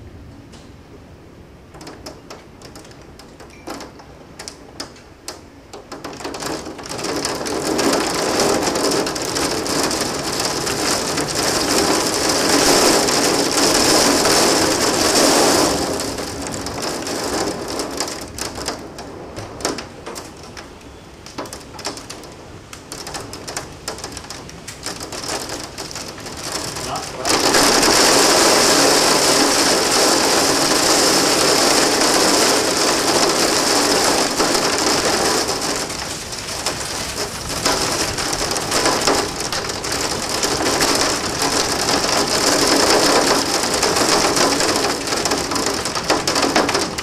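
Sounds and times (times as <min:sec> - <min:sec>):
heavy rain pouring: 0:00.0 - 0:47.0.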